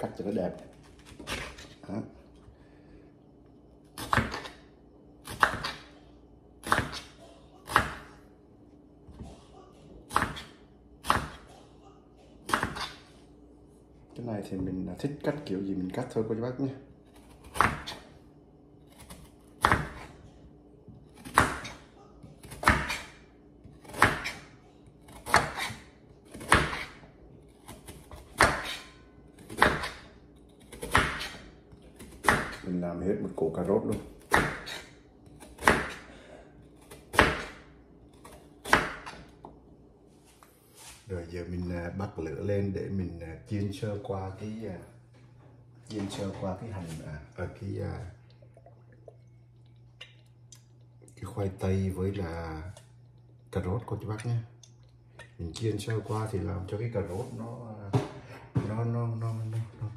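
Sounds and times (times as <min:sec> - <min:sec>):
knife slicing potato on board: 0:05.2 - 0:05.9, 0:06.6 - 0:08.1, 0:10.0 - 0:11.5, 0:12.4 - 0:13.0, 0:18.9 - 0:20.1, 0:21.1 - 0:32.8, 0:33.7 - 0:36.0, 0:36.8 - 0:39.3.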